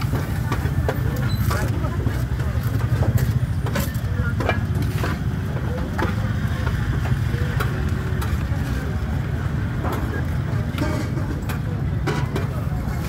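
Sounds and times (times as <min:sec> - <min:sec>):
faint voices: 0:00.0 - 0:13.0
clinks and knocks: 0:02.7 - 0:06.4.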